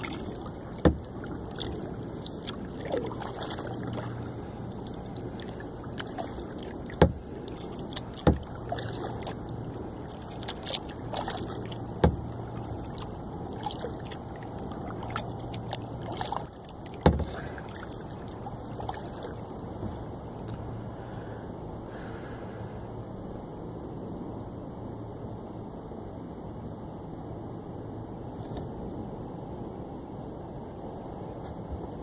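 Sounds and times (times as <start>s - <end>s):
paddle strokes swishing water: 0.0s - 20.9s
sharp knocks: 7.0s - 7.2s.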